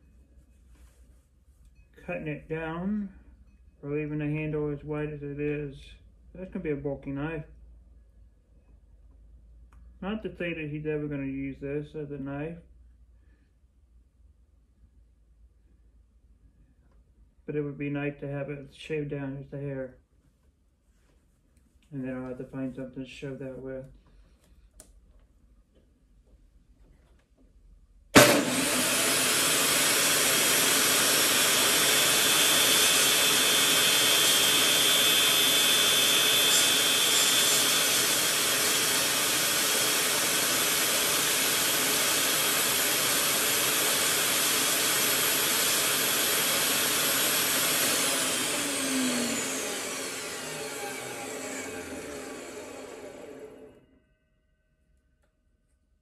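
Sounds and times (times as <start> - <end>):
table saw cutting wood: 28.2 - 53.8
saw spinning down whine: 28.2 - 53.9.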